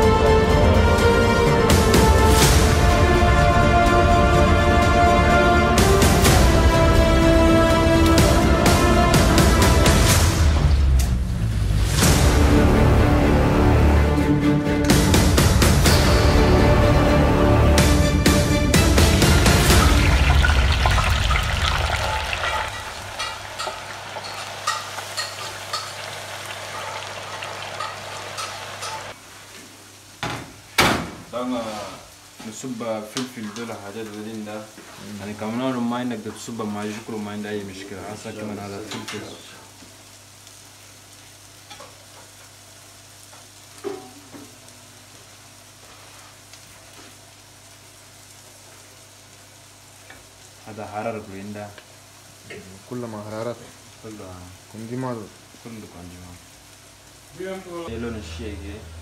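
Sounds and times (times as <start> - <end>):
chips sizzling in hot oil: 14.9 - 59.0.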